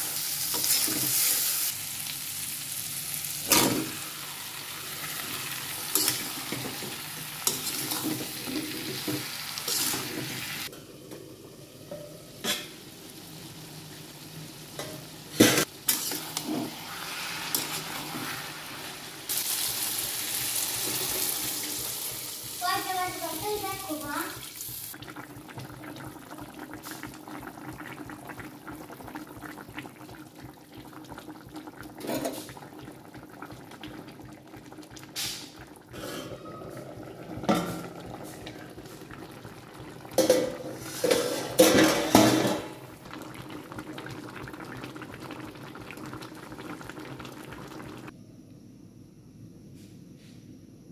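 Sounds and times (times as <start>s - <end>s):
metal pan and lid clanks: 3.5s - 4.0s, 5.9s - 6.3s, 11.9s - 12.8s, 40.2s - 42.7s
curry simmering and bubbling: 24.9s - 48.1s.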